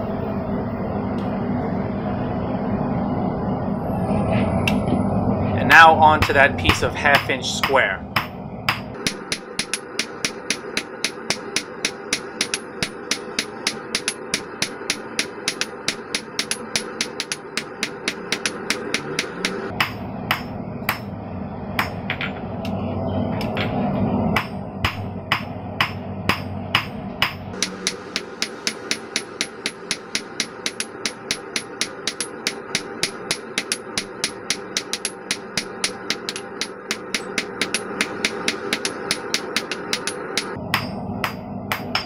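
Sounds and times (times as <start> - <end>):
steady rushing noise: 0.0 - 42.0
hammer ringing on anvil: 6.1 - 21.1, 24.4 - 42.0.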